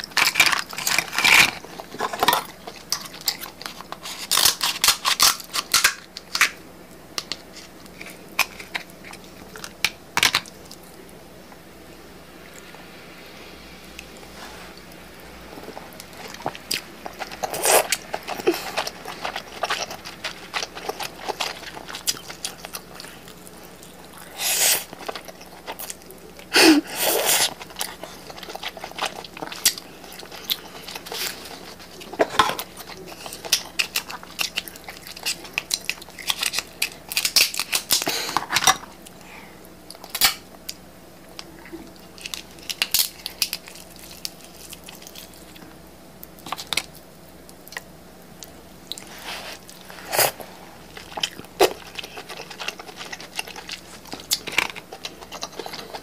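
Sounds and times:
wet chewing and smacking: 15.6 - 26.5, 27.3 - 39.2, 39.9 - 56.0.

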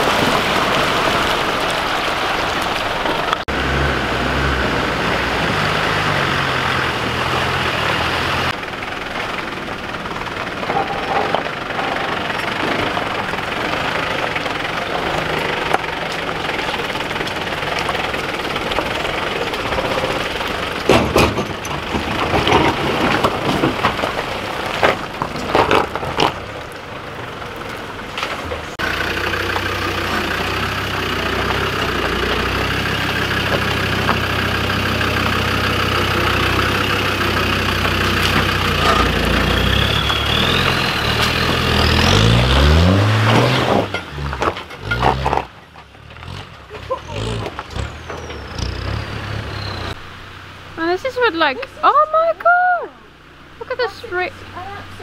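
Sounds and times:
off-road engine at low revs: 0.0 - 55.0
tyres and metal knocking on rock: 20.8 - 26.4.

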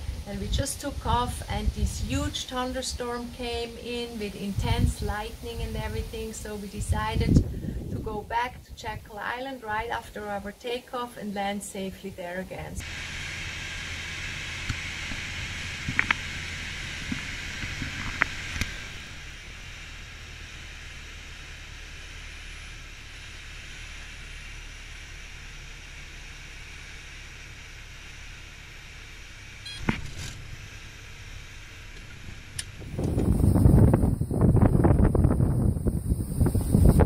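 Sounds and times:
wind gust on microphone: 0.0 - 9.2, 32.1 - 37.0
plane engine drone: 0.0 - 37.0.

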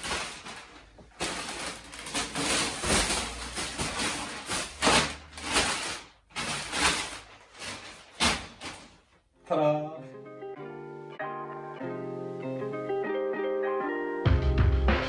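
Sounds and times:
plastic bags crinkling: 0.0 - 9.2.

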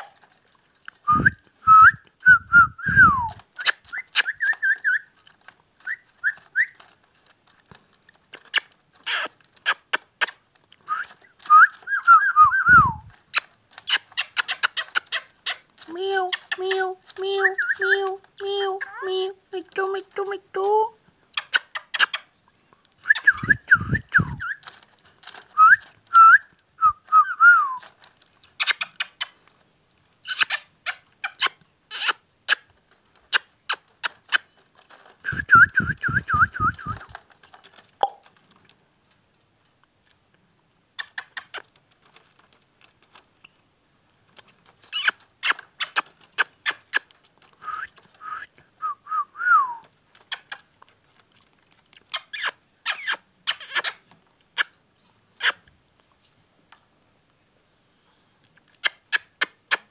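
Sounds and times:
parakeet chattering: 9.1 - 10.3, 13.3 - 15.6, 30.2 - 32.6, 44.9 - 47.0, 52.1 - 54.0.

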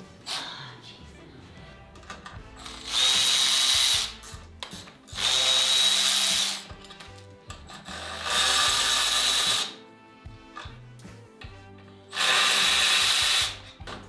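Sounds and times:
cordless power tool whining: 2.7 - 4.3, 5.1 - 6.8, 7.9 - 9.8, 12.1 - 13.8.

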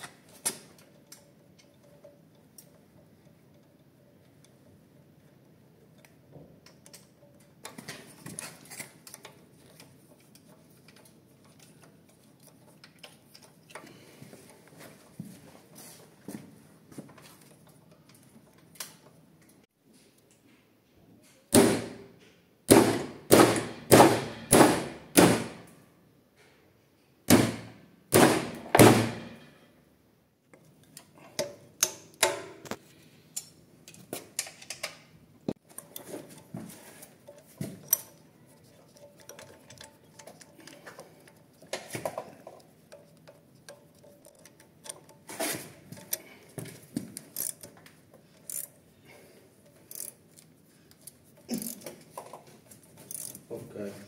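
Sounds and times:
metal parts and spanner clicking: 0.0 - 14.6, 30.6 - 48.9, 49.6 - 53.5.

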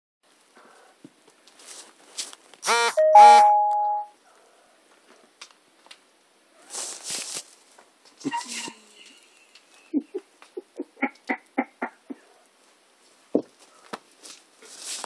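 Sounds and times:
two-note electronic chime: 2.9 - 4.2
short rustling: 6.7 - 8.3.

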